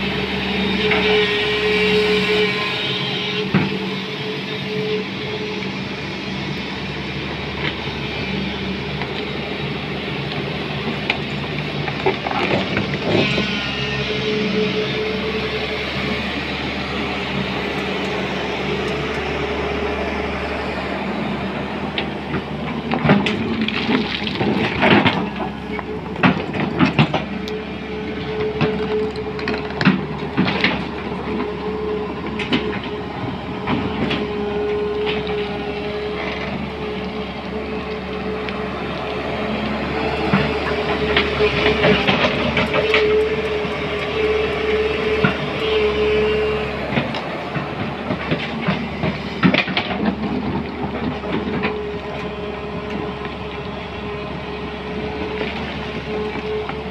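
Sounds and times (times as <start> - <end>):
excavator diesel engine whining: 0.0 - 56.9
excavator bucket clanking on stones: 22.7 - 27.4.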